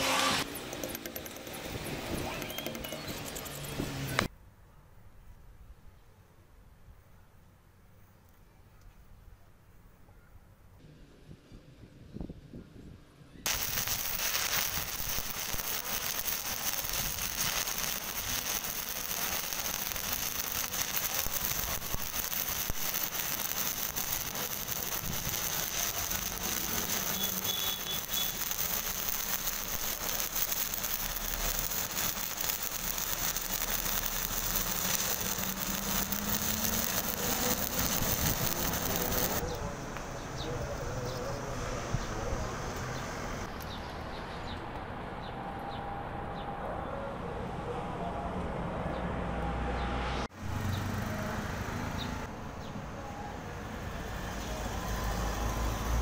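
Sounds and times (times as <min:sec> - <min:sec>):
welding arc crackling and sizzling: 0:00.0 - 0:04.3, 0:13.5 - 0:39.4, 0:53.8 - 0:56.0.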